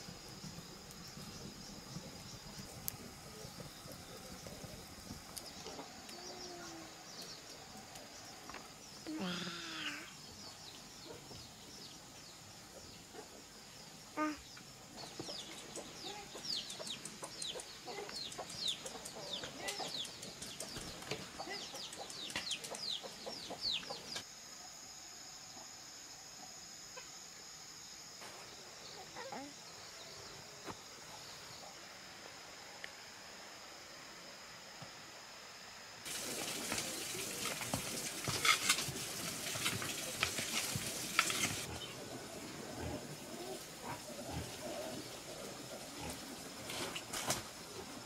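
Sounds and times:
insect drone: 0.0 - 48.0
chickens clucking: 15.1 - 24.2.

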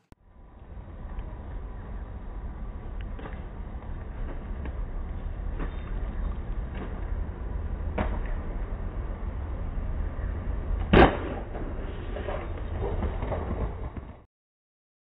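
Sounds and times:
low rumble: 0.2 - 14.2
skateboard landing impact: 7.9 - 8.5, 10.8 - 14.2.

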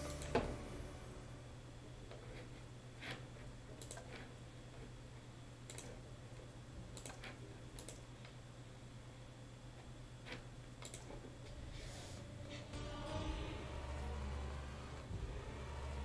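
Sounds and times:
low steady hum: 0.0 - 16.0
computer mouse clicks: 3.0 - 4.3, 5.6 - 6.0, 6.9 - 8.4, 10.3 - 11.2.

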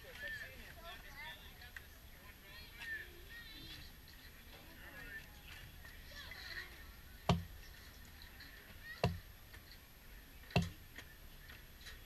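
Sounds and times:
sharp knocks with dull thud: 7.3 - 7.5, 9.0 - 9.2, 10.6 - 10.8.

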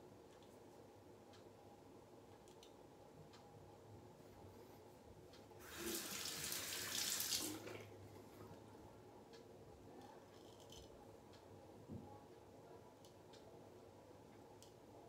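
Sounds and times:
sink tap running: 5.6 - 7.8.

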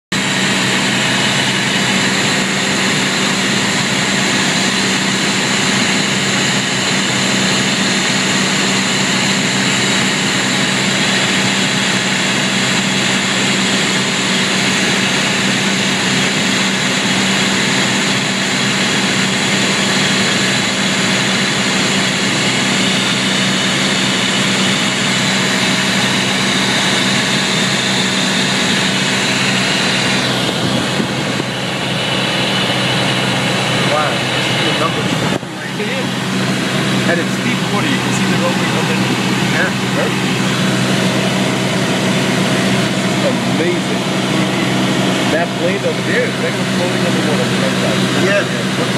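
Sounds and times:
propeller airplane engine drone: 0.1 - 48.9.

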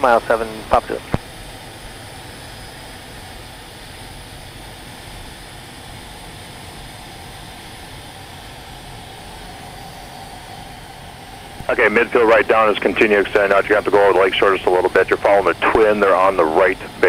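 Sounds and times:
faint steady hum: 0.0 - 17.0
jet cockpit rushing noise: 10.2 - 17.0.

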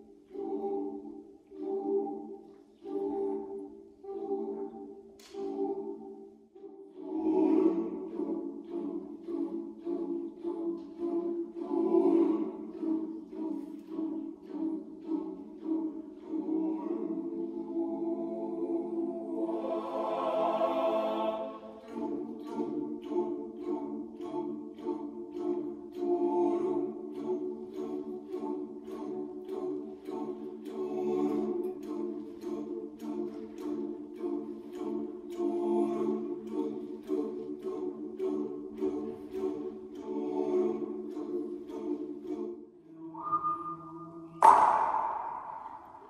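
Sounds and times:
boys' choir singing: 0.0 - 46.0
sharp loud hit ringing: 44.4 - 46.0.

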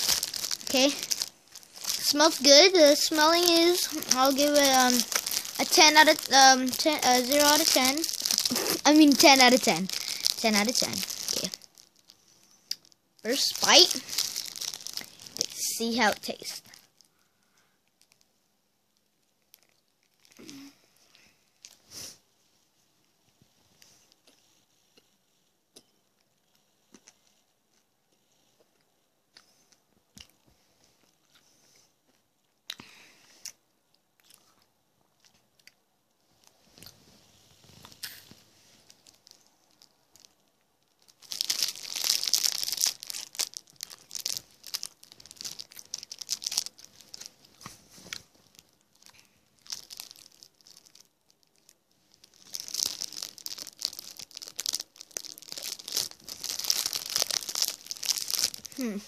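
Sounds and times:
plastic wrapper crinkling: 0.0 - 17.2, 17.8 - 18.3, 18.9 - 20.8, 36.4 - 59.0
faint chewing: 23.8 - 35.8.

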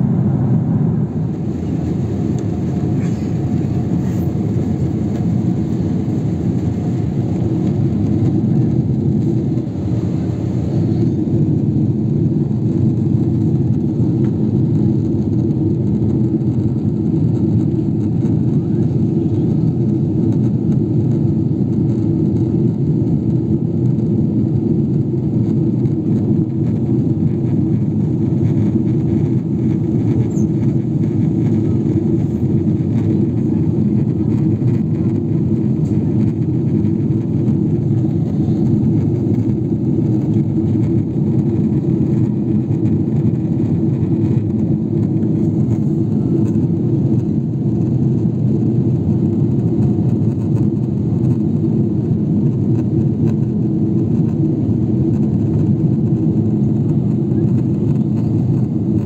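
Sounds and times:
airflow past fuselage: 0.0 - 23.3
aircraft engine drone: 0.0 - 59.0.

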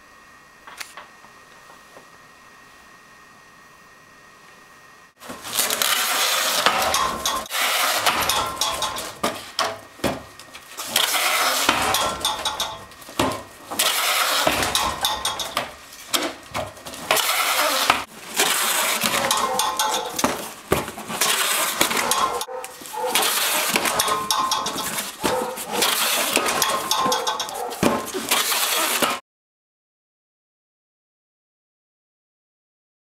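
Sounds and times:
packing tape pulling off roll: 0.7 - 1.0, 5.2 - 9.6, 10.4 - 12.3, 13.7 - 29.2.

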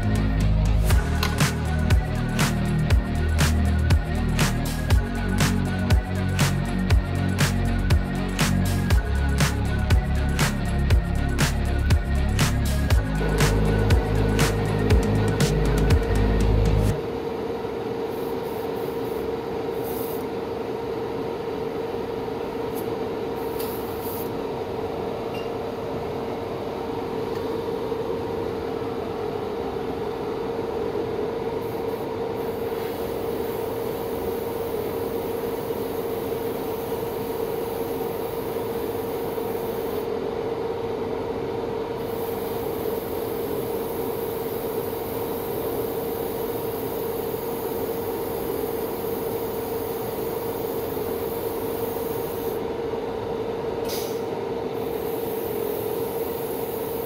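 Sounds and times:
noisy hiss: 0.0 - 17.0, 42.0 - 52.6, 54.8 - 57.0.

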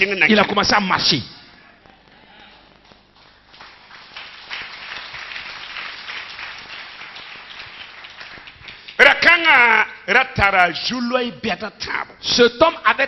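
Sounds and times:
crowd applauding: 2.7 - 9.0.

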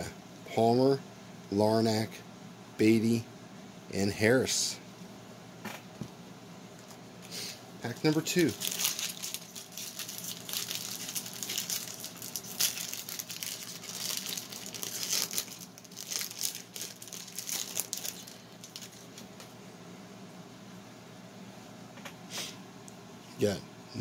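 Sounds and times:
foil wrapper crinkling and tearing: 7.9 - 19.4.

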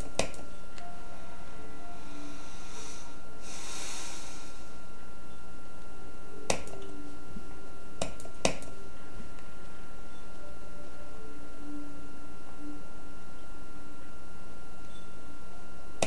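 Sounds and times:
faint hum: 0.0 - 16.0
soft high rushing sound: 1.9 - 5.0
steady hiss: 1.9 - 5.0.

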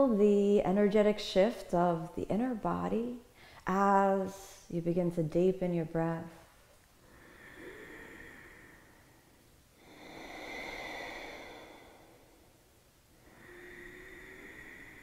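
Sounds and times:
deep breathing through throat: 7.0 - 12.6, 13.2 - 15.0.

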